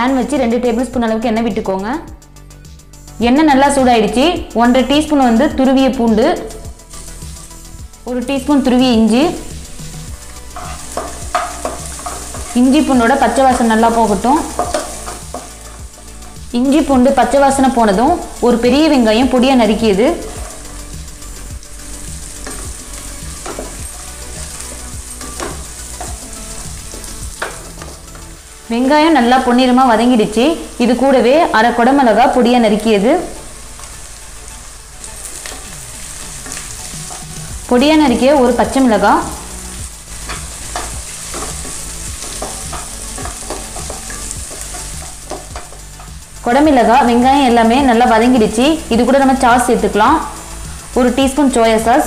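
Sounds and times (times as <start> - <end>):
onion sizzling in hot oil: 0.0 - 52.0
wooden spatula scraping a pan: 10.3 - 16.4, 33.3 - 37.7, 39.4 - 46.1
wooden spatula scraping pan: 10.3 - 16.4.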